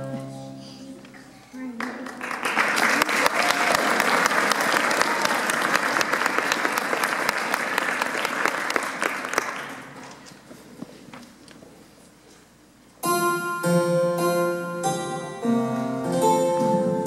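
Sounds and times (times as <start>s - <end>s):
audience applauding: 1.8s - 10.2s.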